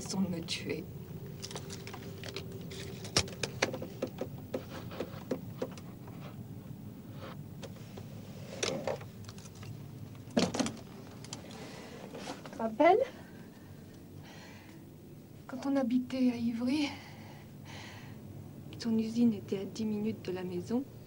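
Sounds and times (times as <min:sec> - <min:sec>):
low steady hum: 0:00.0 - 0:21.0
rustling: 0:01.3 - 0:06.4.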